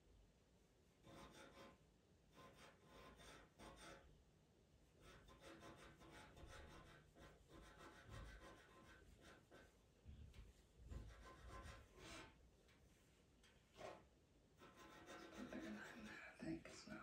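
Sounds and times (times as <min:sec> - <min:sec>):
pastel pencil scratching on paper: 0:01.0 - 0:04.1, 0:05.0 - 0:09.8, 0:10.4 - 0:12.4, 0:14.6 - 0:16.4.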